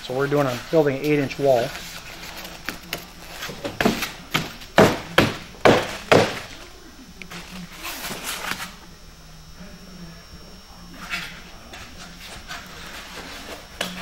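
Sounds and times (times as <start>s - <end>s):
soft rubbing and shuffling: 0.1s - 4.3s
foam panels knocking on wooden table: 3.7s - 6.5s.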